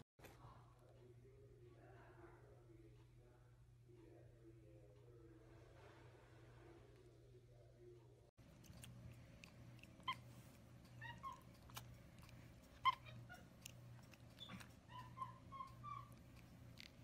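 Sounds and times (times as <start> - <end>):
monkey squeaky chirps: 10.0 - 17.0.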